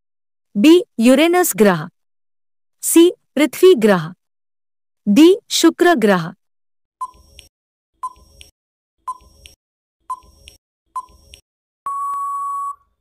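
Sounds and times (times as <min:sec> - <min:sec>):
long steady beep: 0:11.9 - 0:13.0.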